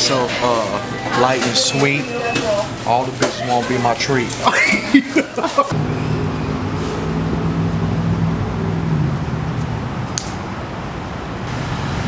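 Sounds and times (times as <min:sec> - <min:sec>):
low mechanical hum: 0:04.2 - 0:12.0.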